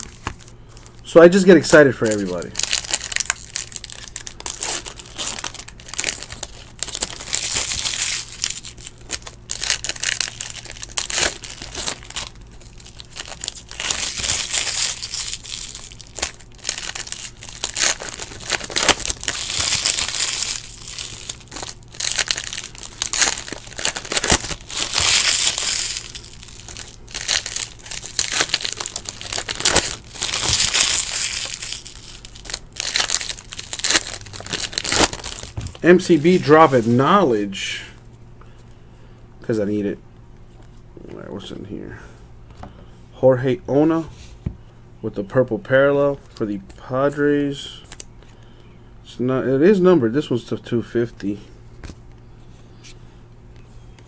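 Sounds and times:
foil wrappers tearing and crinkling: 0:01.4 - 0:37.2.

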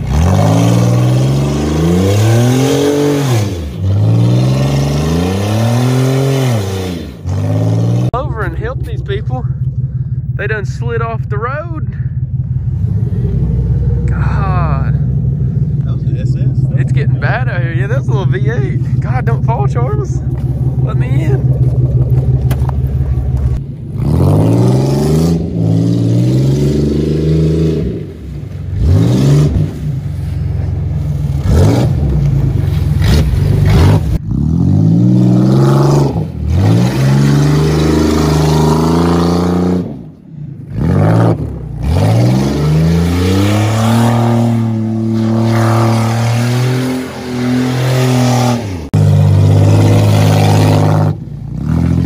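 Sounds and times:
car engine revving hard: 0:00.0 - 0:08.2, 0:24.0 - 0:28.1, 0:28.8 - 0:29.9, 0:31.4 - 0:32.1, 0:33.0 - 0:40.0, 0:40.6 - 0:52.0.

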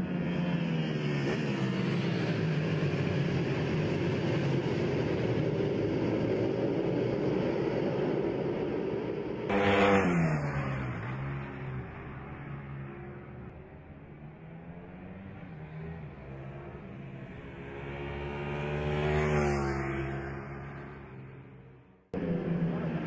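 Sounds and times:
motorcycles racing past: 0:06.0 - 0:23.0.

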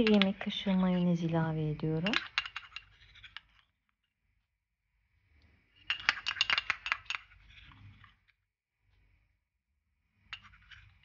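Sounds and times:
spoon tapping glass bowl: 0:00.0 - 0:01.0.

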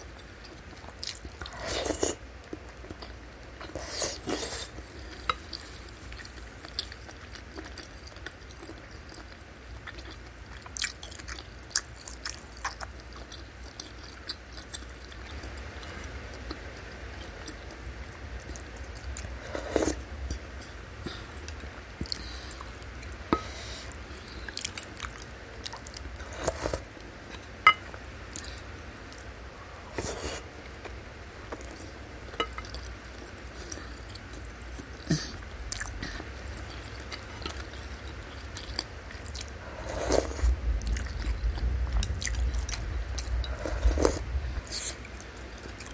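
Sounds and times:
chewing and biting food: 0:00.1 - 0:17.8, 0:30.0 - 0:45.9.

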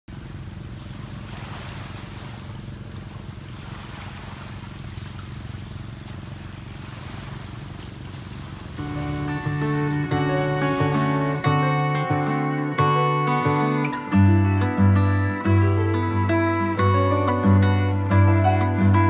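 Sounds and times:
steady wind: 0:00.1 - 0:12.1
continuous low rumble: 0:00.1 - 0:19.0
waves lapping: 0:00.1 - 0:19.0.

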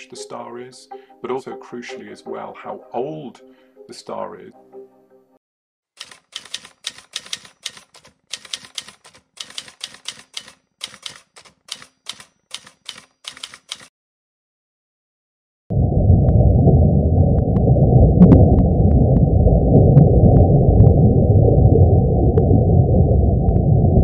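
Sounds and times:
typewriter keys clacking: 0:06.0 - 0:13.9.

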